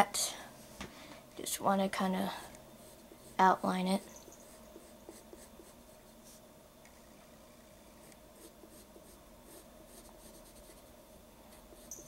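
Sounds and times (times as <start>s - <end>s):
faint steady hum: 0.0s - 12.0s
pencil scratching on paper: 2.8s - 6.4s, 8.4s - 10.9s, 11.5s - 12.0s.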